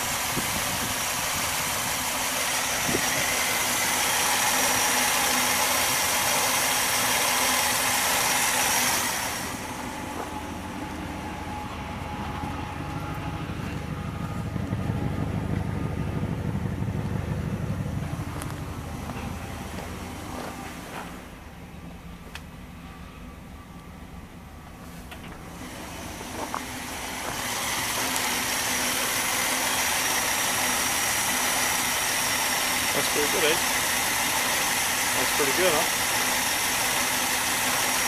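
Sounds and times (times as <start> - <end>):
car engine idling: 0.0 - 38.0
deep low rumble: 9.4 - 27.4.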